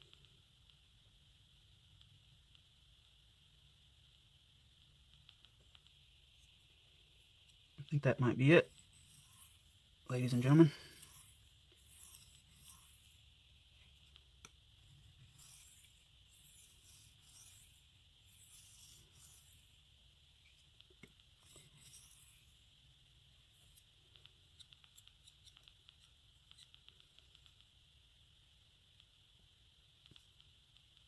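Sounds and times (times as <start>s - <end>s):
knife blade scraping on whetstone: 8.7s - 9.6s, 10.3s - 13.2s, 15.3s - 19.7s, 21.4s - 22.4s.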